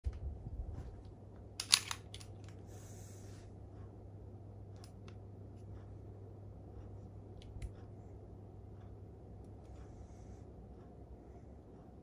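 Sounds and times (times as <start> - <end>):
faint low hum: 0.0 - 12.0
plastic clicks: 1.6 - 2.6.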